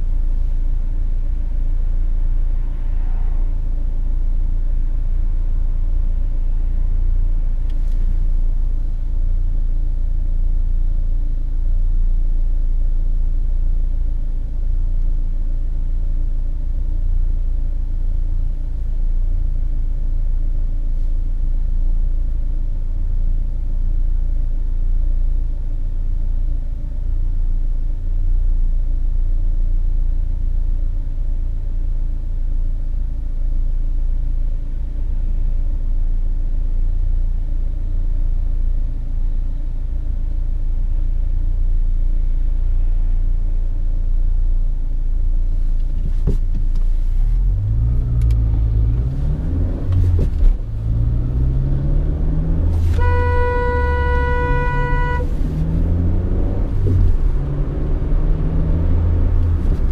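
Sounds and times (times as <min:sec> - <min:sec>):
car engine accelerating: 0:00.0 - 0:09.5, 0:45.6 - 0:59.9
car horn: 0:49.0 - 0:57.6.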